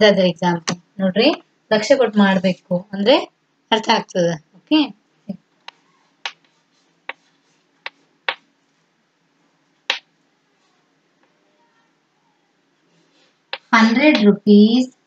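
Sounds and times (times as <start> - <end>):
chalk tapping on blackboard: 6.2 - 8.5, 13.5 - 14.2.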